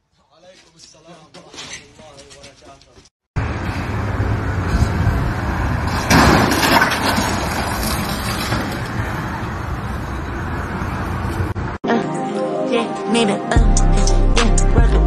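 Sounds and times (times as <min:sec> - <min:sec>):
street vehicle noise: 0:00.3 - 0:11.8.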